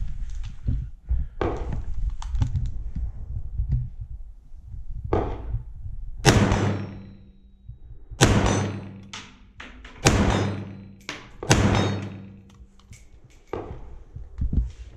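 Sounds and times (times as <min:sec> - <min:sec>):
rifle shots echoing: 0:06.2 - 0:07.4, 0:08.2 - 0:12.8.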